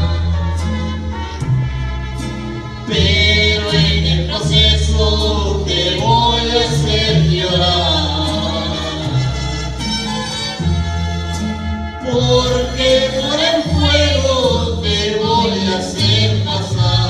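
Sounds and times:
backing track with bass line: 0.0 - 17.0
man and woman singing duet: 2.9 - 9.4, 12.0 - 17.0.

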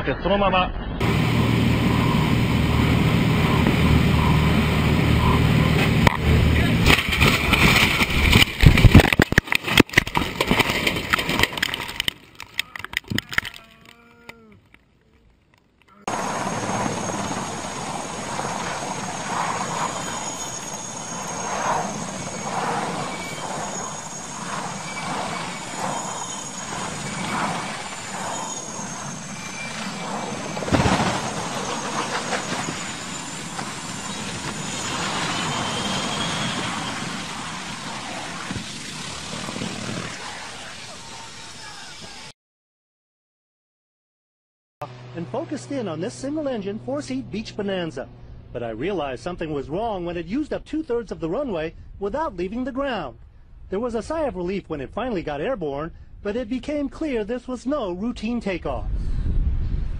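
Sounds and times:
helicopter engine with high whine: 1.0 - 7.3, 16.1 - 40.6
plane crashing with violent rattling: 1.0 - 13.6, 16.1 - 40.9
voices: 12.6 - 15.2, 40.4 - 42.3, 45.2 - 52.8.

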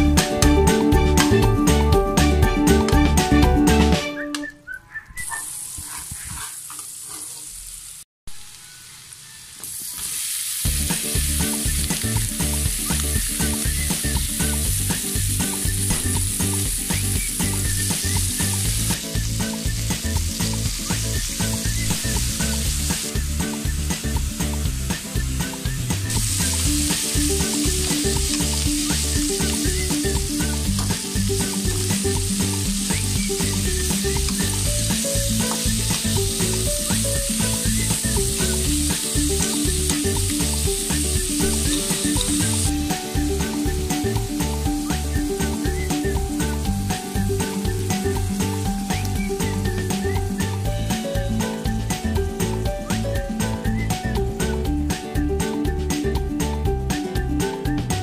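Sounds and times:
food sizzling in a wok: 5.2 - 53.7
metal spatula scraping pan: 5.6 - 7.5.

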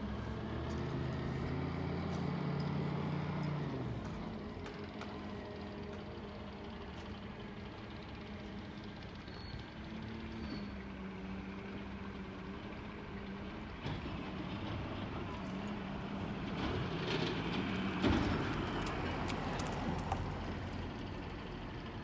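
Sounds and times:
garbage truck engine and hydraulics: 0.0 - 22.0
cart rattling and clattering: 13.5 - 21.0.

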